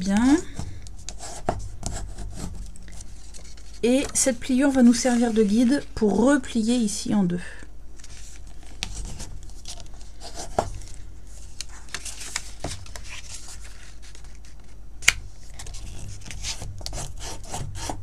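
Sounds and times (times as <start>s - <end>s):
bone folder scraping paper: 0.5s - 5.5s, 8.0s - 14.7s, 15.5s - 18.0s
paper rustling: 2.4s - 5.8s, 8.0s - 17.0s.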